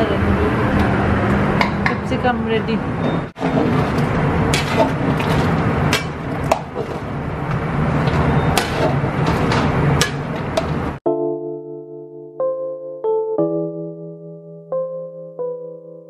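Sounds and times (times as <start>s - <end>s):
metal ladle scraping a pot: 3.4s - 7.2s, 8.0s - 10.8s.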